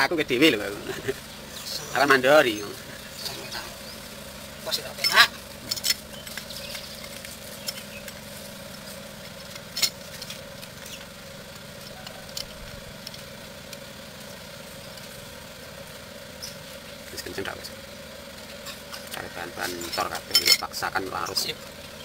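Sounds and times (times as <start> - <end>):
mechanical hum: 0.0 - 22.0.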